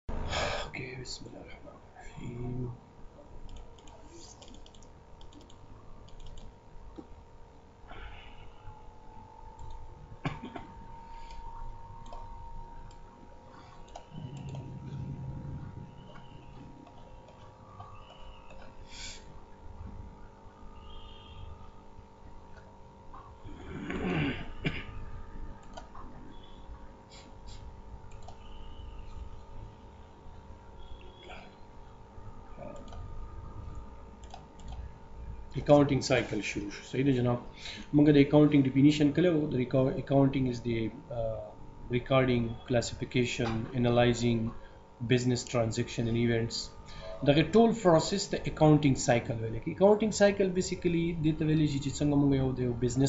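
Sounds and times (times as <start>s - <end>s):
faint electrical hum: 0.1s - 53.0s
computer mouse clicking: 3.4s - 7.1s, 9.6s - 9.8s, 12.0s - 13.0s, 13.7s - 15.0s, 25.6s - 26.1s, 27.5s - 28.5s, 32.7s - 33.1s, 34.2s - 34.9s.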